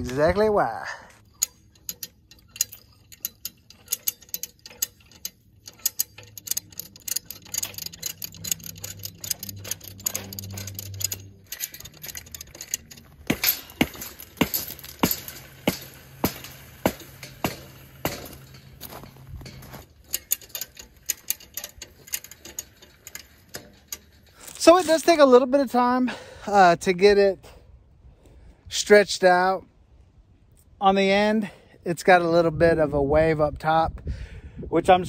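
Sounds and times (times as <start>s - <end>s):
hand winch ratcheting clicks: 1.2s - 25.7s.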